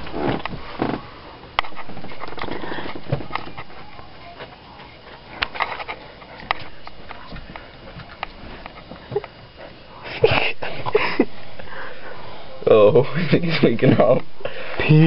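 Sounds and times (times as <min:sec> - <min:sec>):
stifled snickering: 0:09.0 - 0:11.5
hushed breathing: 0:09.0 - 0:12.6, 0:14.4 - 0:14.9.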